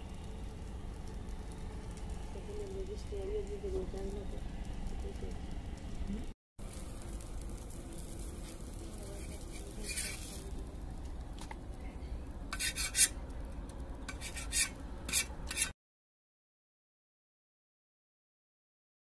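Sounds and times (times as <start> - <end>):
steady low rumble: 0.0 - 14.2
metal pan and utensils scraping: 8.4 - 10.6, 12.5 - 13.2, 14.1 - 15.8.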